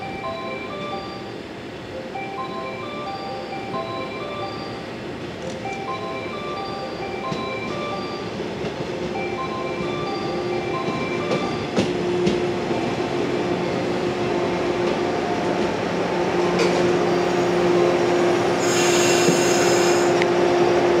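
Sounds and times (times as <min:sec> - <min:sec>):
train rolling noise: 0:00.0 - 0:21.0
high wheel squeal: 0:17.0 - 0:20.2.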